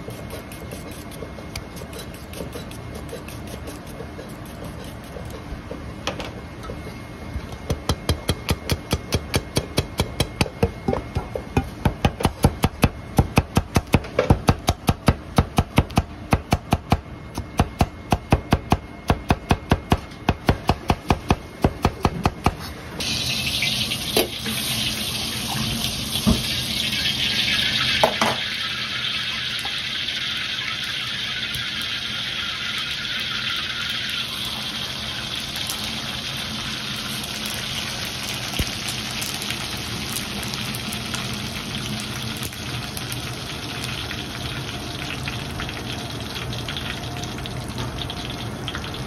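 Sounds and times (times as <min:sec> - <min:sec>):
oil sizzling in a wok: 0:23.0 - 0:49.0.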